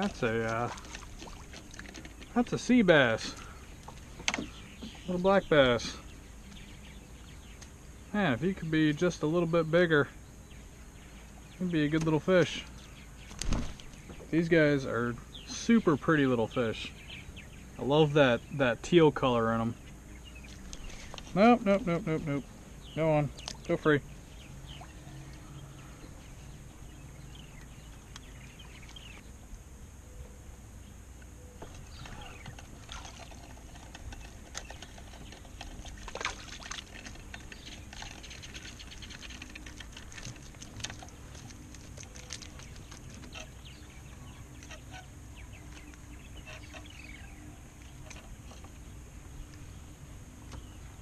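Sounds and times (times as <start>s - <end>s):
water lapping: 0.0s - 6.2s, 31.7s - 45.1s.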